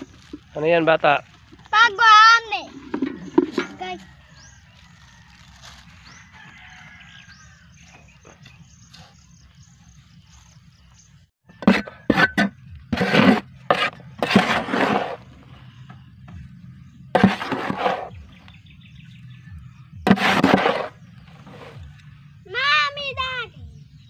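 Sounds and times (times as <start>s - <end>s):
trowel scraping soil: 1.4s - 7.5s, 11.5s - 15.6s, 17.1s - 18.4s, 20.0s - 22.1s
faint chicken calls: 3.1s - 9.1s.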